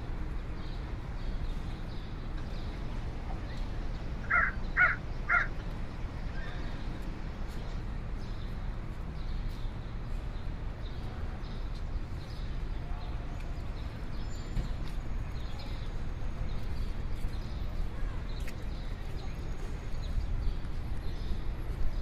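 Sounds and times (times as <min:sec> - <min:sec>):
crow cawing: 0:04.3 - 0:05.5.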